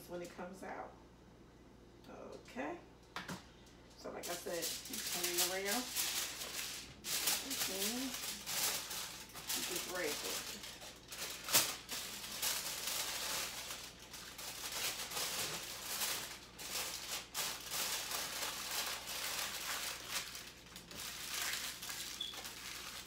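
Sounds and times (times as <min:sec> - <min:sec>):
aluminium foil crinkling: 0:04.2 - 0:23.0.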